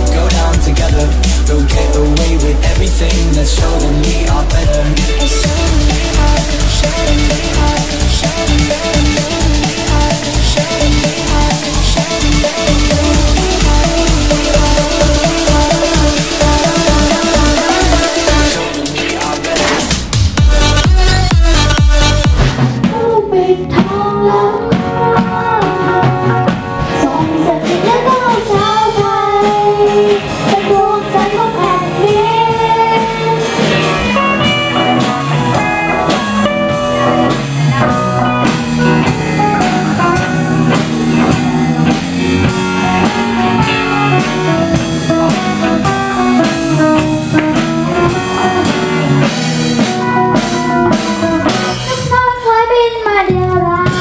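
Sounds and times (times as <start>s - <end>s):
drum beat: 0.0s - 23.0s
electric guitar: 0.0s - 52.3s
children singing: 3.8s - 19.8s.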